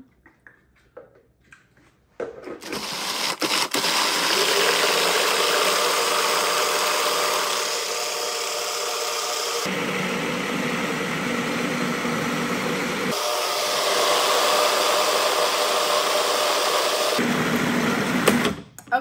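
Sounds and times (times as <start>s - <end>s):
food processor motor running: 2.6s - 18.6s.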